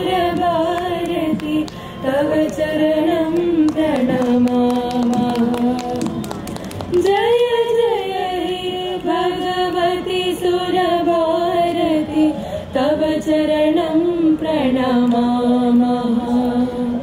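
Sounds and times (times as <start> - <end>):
students singing an invocation: 6.9 - 17.0.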